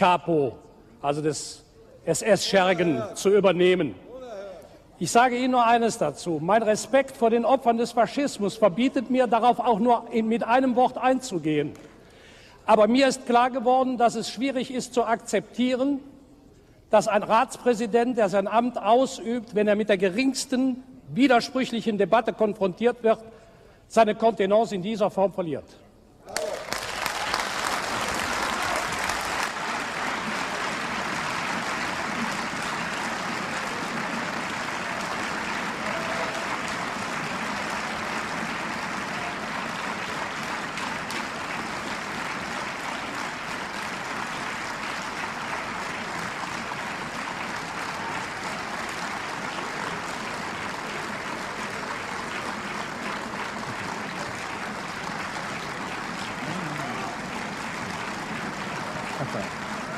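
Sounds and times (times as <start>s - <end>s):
crowd applause: 26.3s - 59.9s.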